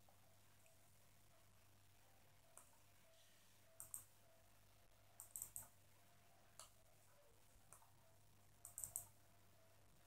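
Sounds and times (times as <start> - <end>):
low steady hum: 0.0 - 10.0
computer mouse clicks: 2.5 - 2.8, 3.7 - 4.1, 5.2 - 5.8, 6.6 - 6.8, 7.7 - 7.9, 8.6 - 9.2.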